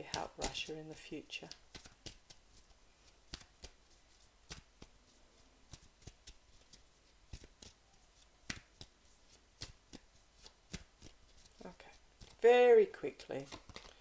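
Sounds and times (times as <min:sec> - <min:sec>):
cards clicking and tapping: 0:00.0 - 0:00.7, 0:01.5 - 0:03.8, 0:05.7 - 0:07.8, 0:08.4 - 0:11.6, 0:12.2 - 0:12.4, 0:13.4 - 0:14.0.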